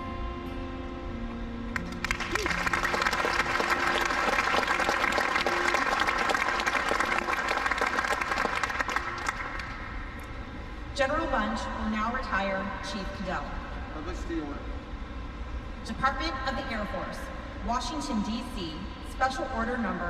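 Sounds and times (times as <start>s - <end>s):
audience applauding: 1.7s - 10.0s.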